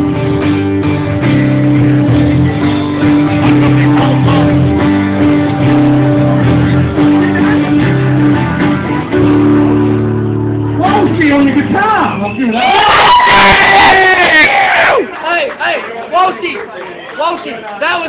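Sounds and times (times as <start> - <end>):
guitar strumming chords: 0.0 - 12.6
live band playing: 0.0 - 14.7.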